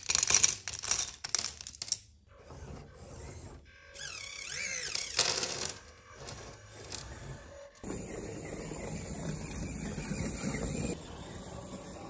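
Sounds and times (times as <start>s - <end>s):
tiny electric motor whirring: 3.0s - 12.0s.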